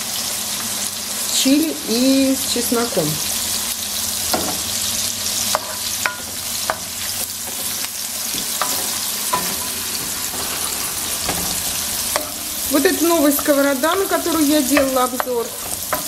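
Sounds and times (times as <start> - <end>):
onion sizzling in hot oil: 0.0 - 16.0
wooden spoon knocking on pan: 4.3 - 4.7, 11.1 - 16.0.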